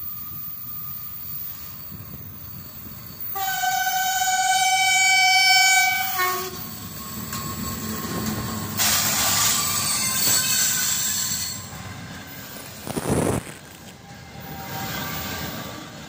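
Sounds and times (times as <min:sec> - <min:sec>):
locomotive hiss: 0:00.0 - 0:16.0
train wheels rumbling on rails: 0:00.0 - 0:16.0
train horn chord: 0:03.4 - 0:06.6.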